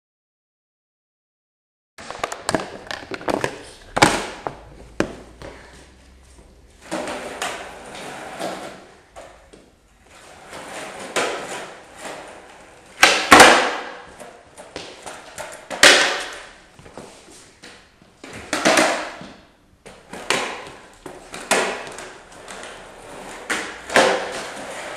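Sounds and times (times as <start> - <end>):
skateboard wheels rolling on wood: 6.4 - 19.2, 19.9 - 24.9
skateboard clacks on wooden floor: 10.5 - 17.0, 17.6 - 24.9.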